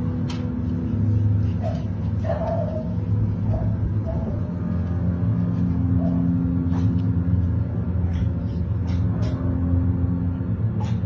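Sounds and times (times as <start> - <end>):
deep rumbling drone music: 0.0 - 11.0.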